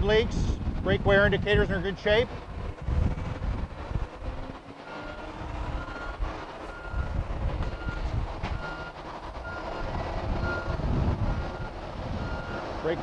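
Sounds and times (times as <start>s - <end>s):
steady low rumble: 0.0s - 13.0s
reversing alarm beeping: 4.8s - 8.0s, 8.6s - 12.7s.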